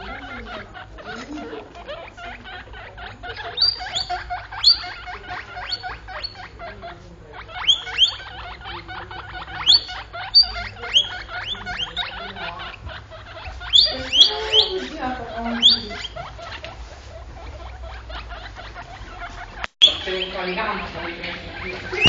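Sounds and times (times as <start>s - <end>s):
guinea pigs squeaking: 0.0s - 22.0s.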